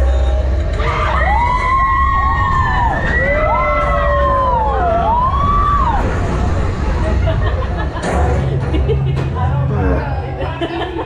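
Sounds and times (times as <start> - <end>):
low rumble: 0.0 - 11.0
riders screaming: 0.7 - 6.5.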